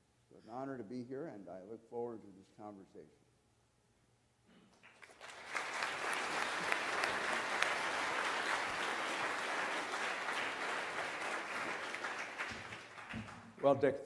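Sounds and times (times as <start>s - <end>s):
audience applauding: 4.8s - 13.8s.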